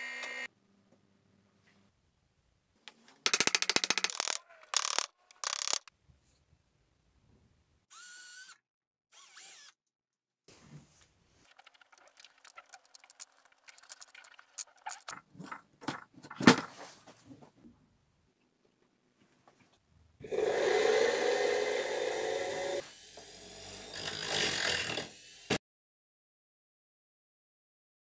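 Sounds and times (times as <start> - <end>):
rapid ratchet clicking: 3.3 - 5.9
small metal clicks and scrapes: 3.3 - 5.9, 11.4 - 15.6.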